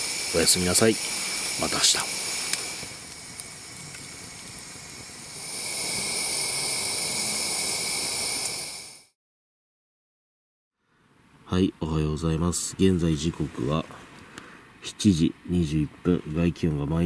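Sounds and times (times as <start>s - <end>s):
pressure lantern hissing: 0.0s - 9.2s.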